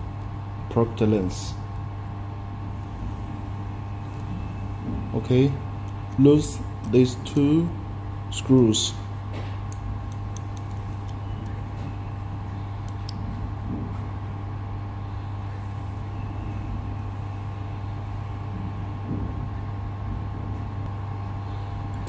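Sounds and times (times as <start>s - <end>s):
laser cleaning machine hum: 0.0s - 22.0s.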